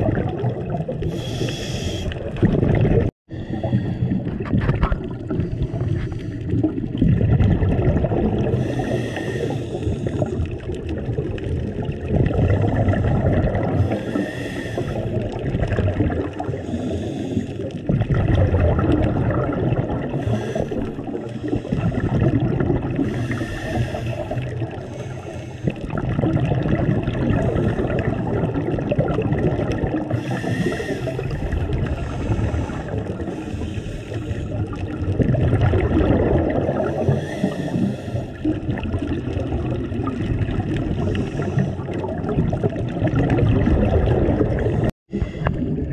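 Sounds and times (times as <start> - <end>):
exhaled air bubbling: 0.0 - 45.9
regulator hissing inhale: 1.1 - 2.2, 8.6 - 10.4, 13.8 - 15.3, 16.6 - 17.7, 20.2 - 21.8, 23.0 - 25.8, 30.2 - 31.3, 32.0 - 34.7, 36.9 - 38.4, 41.0 - 41.9.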